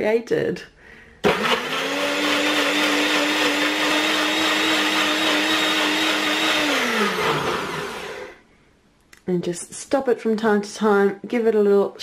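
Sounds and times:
blender motor whining: 1.2 - 8.4.

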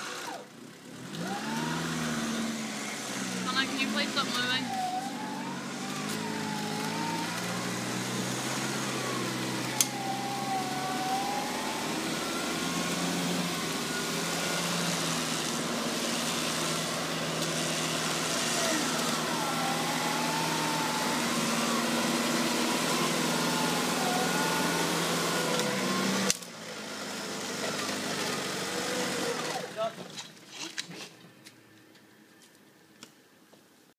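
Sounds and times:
engine running at low revs: 0.0 - 29.9
wavering thin whine: 3.7 - 15.4, 18.1 - 26.2.

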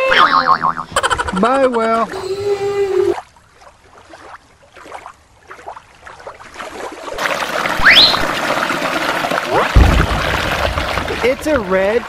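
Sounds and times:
creek running over rocks: 1.4 - 12.0
short rising squeak: 7.8 - 8.3.

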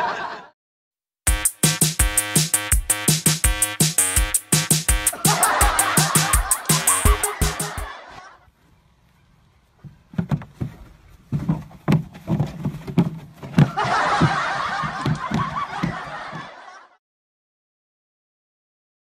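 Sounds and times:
people laughing: 0.0 - 0.6, 5.1 - 8.4, 13.7 - 17.0.

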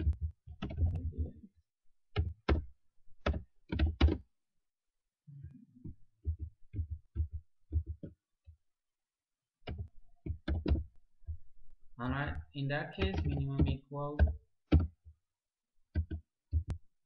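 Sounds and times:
computer keyboard keystrokes: 13.0 - 14.9.

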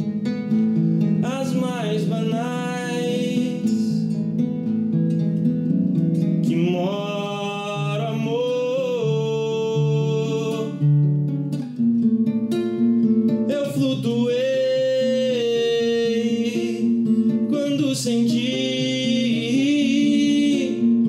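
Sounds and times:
acoustic guitar: 0.0 - 21.0
man singing: 1.2 - 4.2, 6.4 - 11.0, 13.5 - 21.0.

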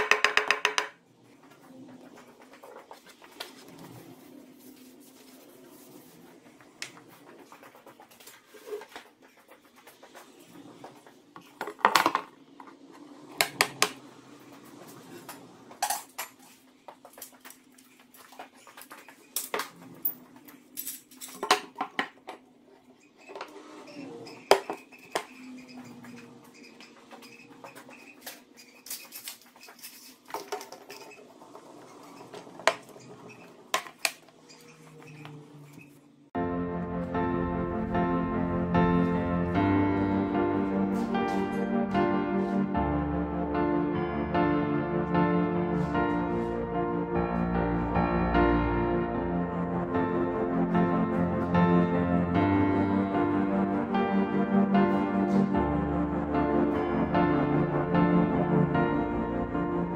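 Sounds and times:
clamps and tools knocking and clinking: 0.0 - 1.0, 15.8 - 22.4.

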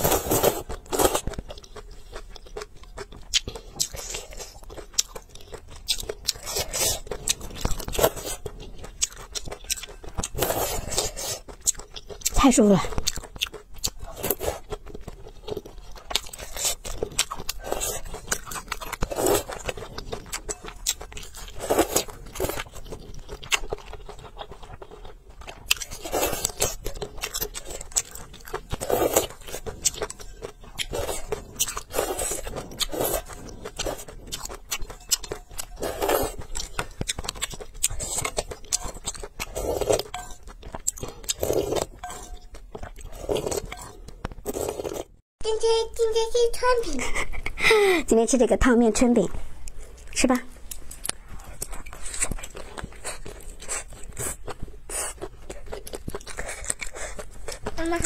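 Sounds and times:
noodle slurping: 0.0 - 1.3
wet chewing: 0.0 - 45.2, 48.8 - 58.0.

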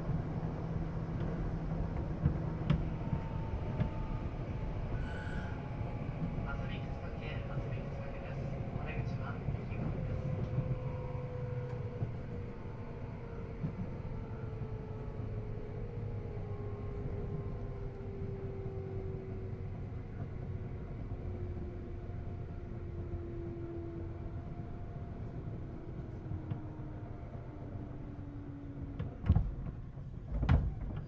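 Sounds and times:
train wheels rumbling on track: 0.0 - 31.0.

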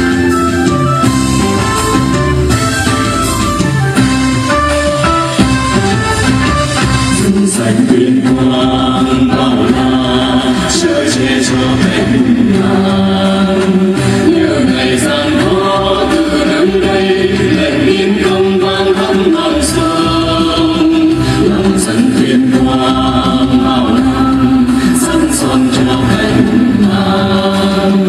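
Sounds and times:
sharp percussion strikes: 0.0 - 8.6
instrumental backing music: 0.0 - 28.0
group singing folk song: 1.1 - 28.0.

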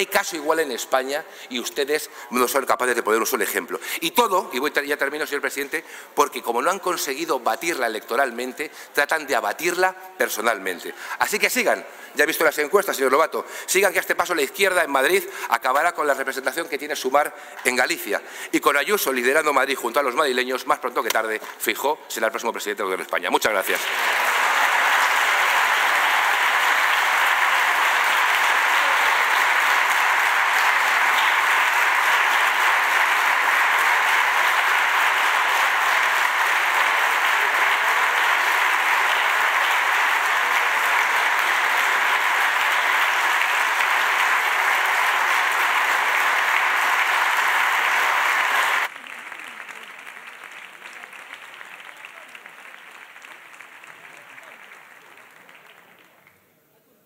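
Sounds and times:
large crowd applauding: 0.0 - 0.8, 23.5 - 56.4
faint background noise: 0.0 - 57.0.

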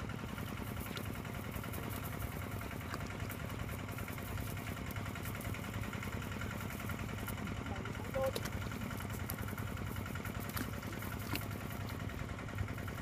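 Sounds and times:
engine running steadily: 0.0 - 13.0.

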